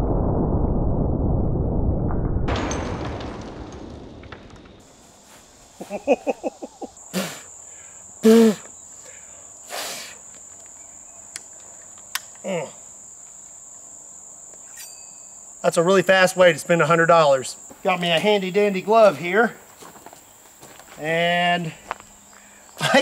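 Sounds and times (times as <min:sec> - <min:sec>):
insects buzzing: 0:04.8 - 0:23.0
man laughing: 0:05.8 - 0:07.4, 0:22.8 - 0:23.0.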